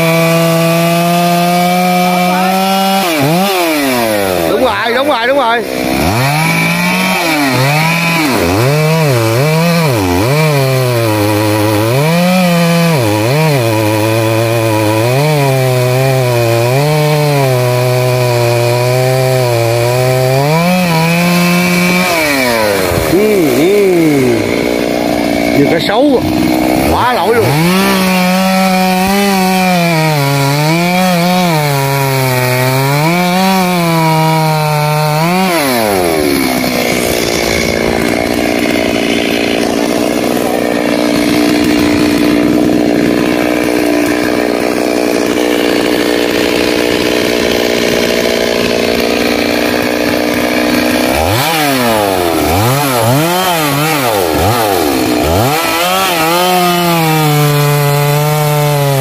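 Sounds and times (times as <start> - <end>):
chainsaw cutting wood: 0.0 - 59.0.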